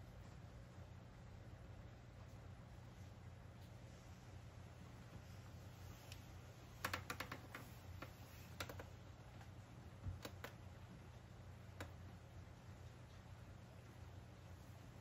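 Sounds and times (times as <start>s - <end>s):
low steady hum: 0.0s - 15.0s
small clicks and taps: 6.0s - 11.0s, 11.6s - 12.2s.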